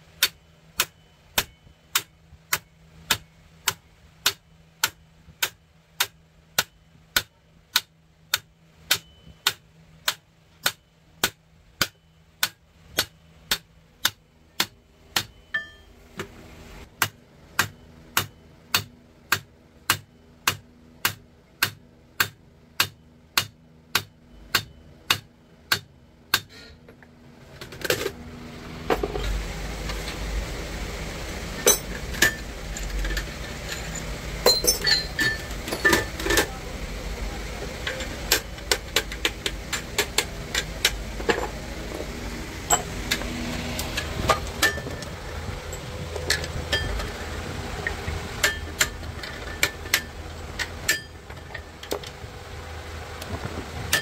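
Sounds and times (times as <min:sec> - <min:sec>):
hammer tapping on metal: 0:00.2 - 0:15.9, 0:17.0 - 0:26.6, 0:48.4 - 0:50.2, 0:50.8 - 0:51.6
low rumble: 0:28.2 - 0:54.0.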